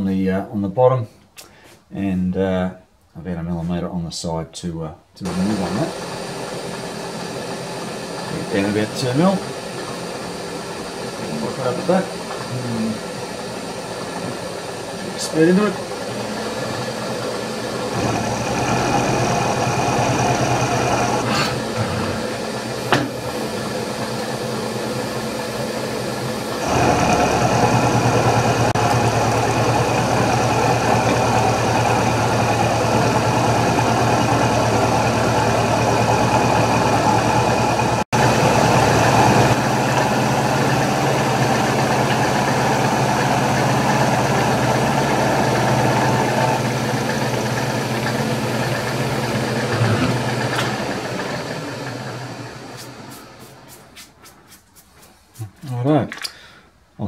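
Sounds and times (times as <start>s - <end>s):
milling machine cutting metal: 5.3s - 53.4s
motor hum: 5.3s - 55.5s.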